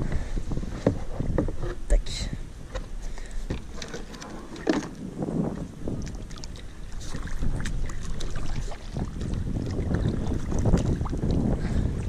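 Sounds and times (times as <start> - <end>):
paddle dipping into water: 2.7 - 12.0.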